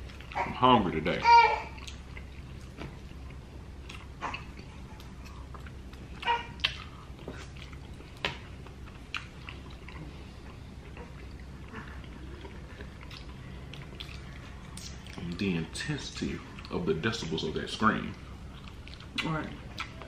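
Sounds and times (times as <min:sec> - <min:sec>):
baby squealing: 0:00.4 - 0:01.8, 0:06.2 - 0:06.7
chewing: 0:01.8 - 0:15.5, 0:16.4 - 0:16.9, 0:18.1 - 0:20.0.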